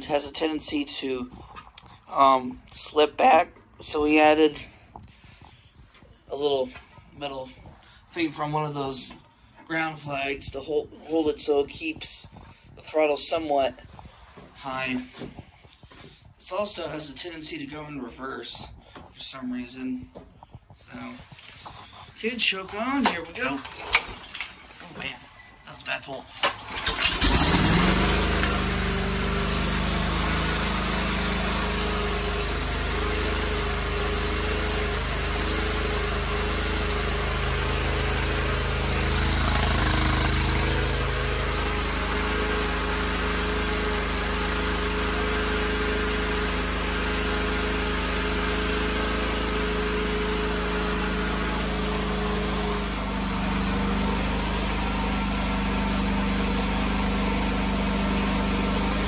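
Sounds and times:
lawn mower engine running: 26.4s - 59.0s.

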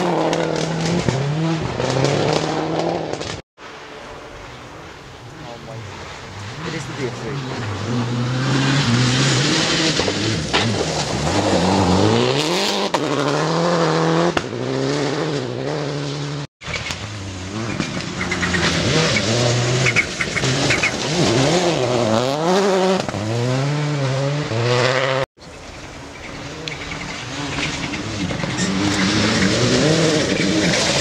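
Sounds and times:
rally car engines revving: 0.0s - 25.3s, 25.9s - 31.0s.

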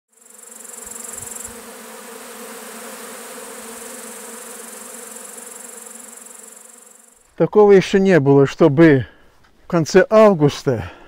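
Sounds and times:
bees buzzing: 0.1s - 7.3s.

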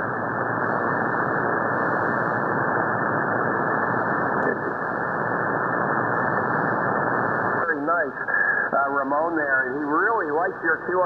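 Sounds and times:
radio static and hiss: 0.0s - 11.0s.

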